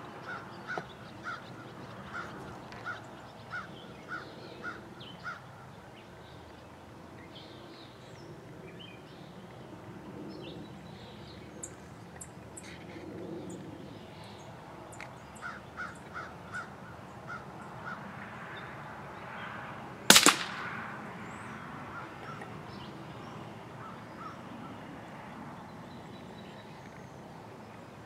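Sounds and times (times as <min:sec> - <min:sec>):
bird calling: 0:00.0 - 0:05.8, 0:15.0 - 0:18.0
rifle shot: 0:20.1 - 0:21.0.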